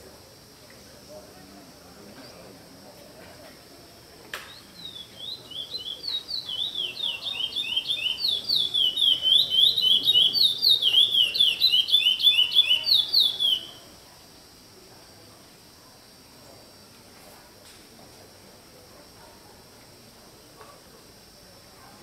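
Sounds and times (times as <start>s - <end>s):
songbird singing: 4.3s - 14.0s.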